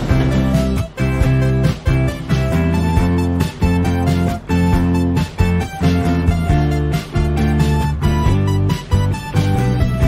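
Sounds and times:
upbeat music with strummed guitar: 0.0s - 10.0s.

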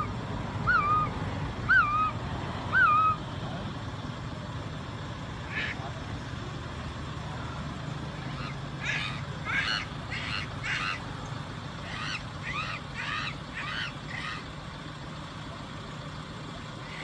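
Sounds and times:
animal calls rising and falling: 0.0s - 3.2s, 8.2s - 11.1s, 11.8s - 14.5s.

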